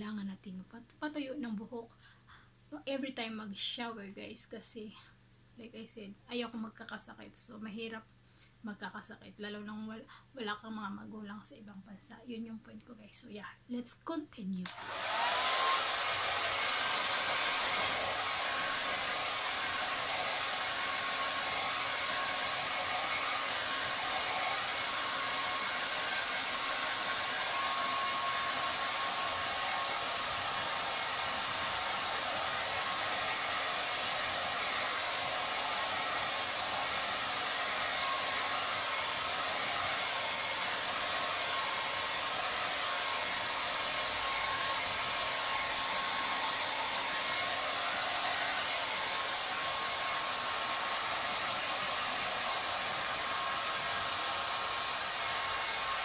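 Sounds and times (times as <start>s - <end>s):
hair dryer blowing: 14.6s - 56.0s.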